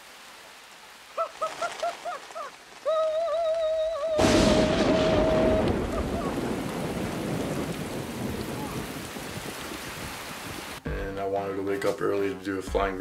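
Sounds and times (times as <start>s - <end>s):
heavy rain: 0.0s - 10.8s
thunder clap: 4.1s - 10.6s.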